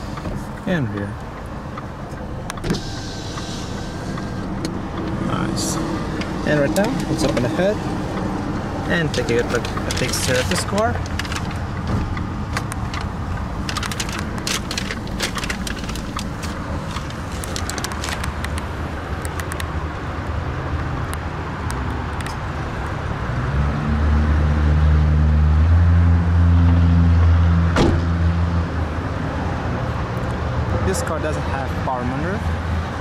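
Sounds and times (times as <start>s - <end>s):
car engine idling: 0.0s - 21.4s.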